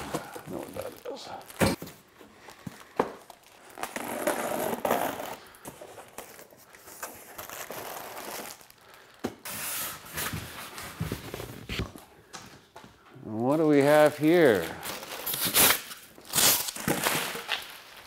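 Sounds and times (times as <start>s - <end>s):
cardboard rustling and scraping: 9.5s - 12.0s.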